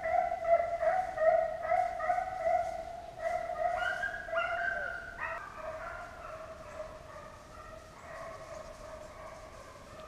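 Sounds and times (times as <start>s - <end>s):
hounds baying: 0.0s - 10.0s.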